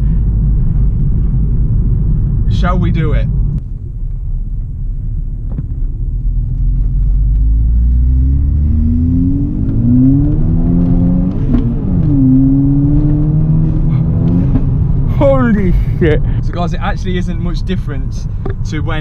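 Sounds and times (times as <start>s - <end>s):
car engine accelerating hard: 6.2s - 19.0s.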